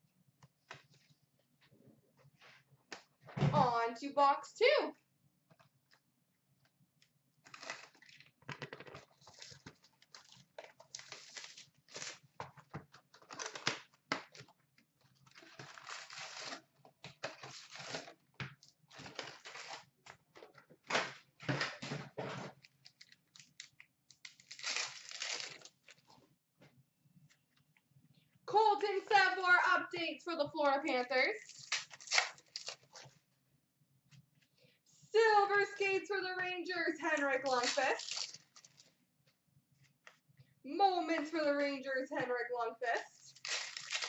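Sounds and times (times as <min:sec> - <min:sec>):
plastic wrapping tearing and crinkling: 0:07.4 - 0:08.3, 0:09.0 - 0:12.4, 0:13.1 - 0:14.6, 0:15.2 - 0:20.1, 0:22.6 - 0:26.2, 0:31.4 - 0:33.1, 0:37.4 - 0:38.9, 0:43.3 - 0:44.0.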